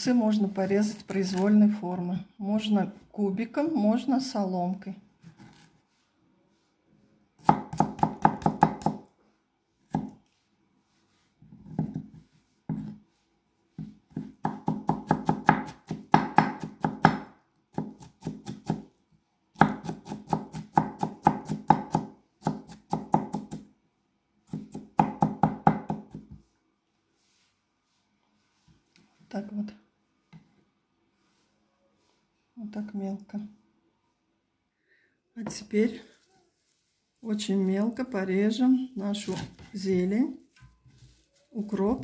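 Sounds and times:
knife chopping on wooden board: 7.4 - 9.0, 9.9 - 10.2, 13.8 - 18.9, 19.6 - 23.6, 24.5 - 26.4.

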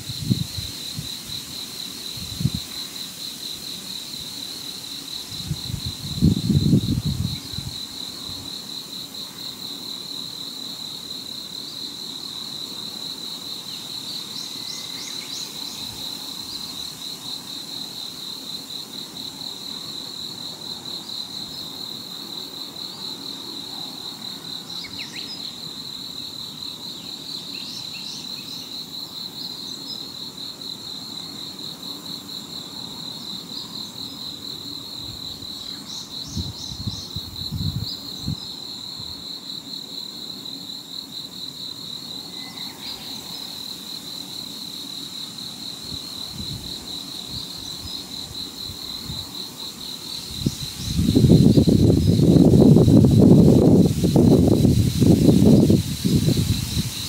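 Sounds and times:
insect trilling: 41.8 - 57.0.

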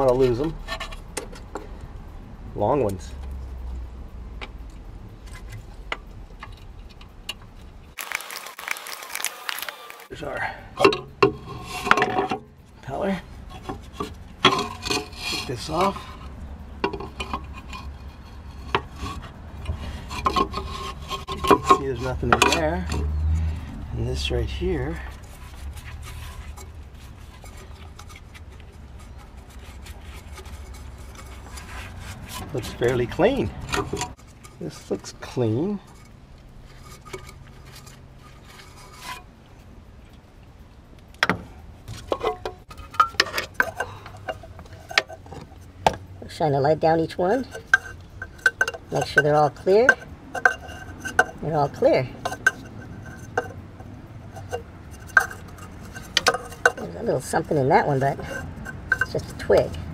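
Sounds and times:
hard plastic parts scraping: 13.4 - 39.3, 41.2 - 46.2, 46.9 - 59.9
sharp clicks and knocks: 13.5 - 18.0, 47.5 - 59.9.

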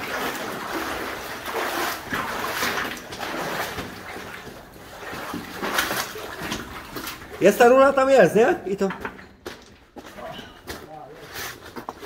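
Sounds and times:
boots splashing through water: 0.0 - 7.9.

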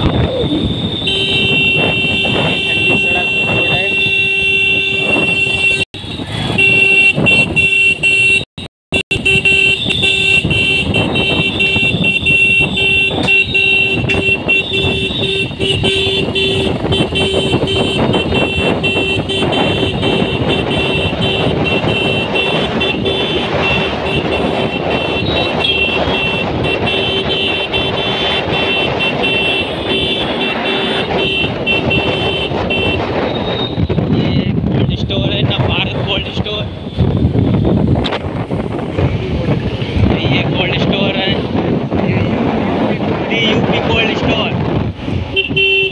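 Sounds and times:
motorcycle engine and road rumble: 0.0 - 45.9
wind noise: 0.0 - 45.9.

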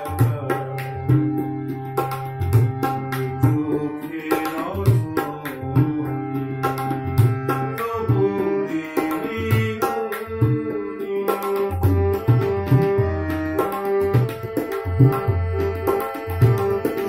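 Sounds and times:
harmonium sustained notes: 0.0 - 17.0
tabla drumming: 0.0 - 17.0.

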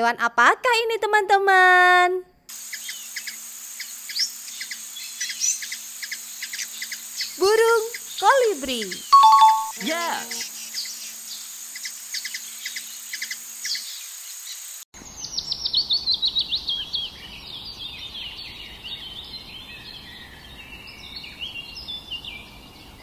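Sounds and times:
descending high chirps: 9.0 - 10.4.

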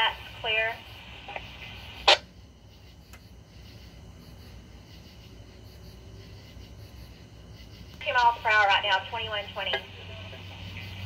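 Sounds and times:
radio static burst: 0.0 - 2.3, 8.0 - 11.0
faint radio hiss and hum: 0.0 - 11.0.

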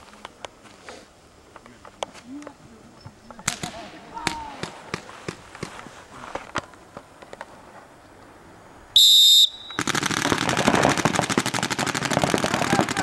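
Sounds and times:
sharp pops: 3.3 - 7.5
paintball markers rapid fire: 9.6 - 13.0.

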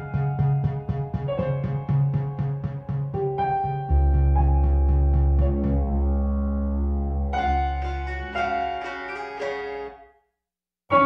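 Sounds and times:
loud music chord: 3.9 - 8.9.

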